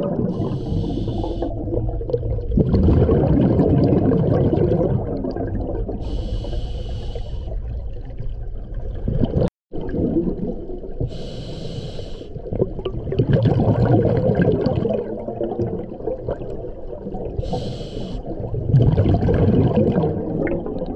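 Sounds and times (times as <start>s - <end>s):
exhaled bubbles underwater: 0.0s - 20.9s
hissing regulator inhalations: 0.4s - 1.5s, 6.0s - 7.6s, 11.1s - 12.4s, 17.4s - 18.3s.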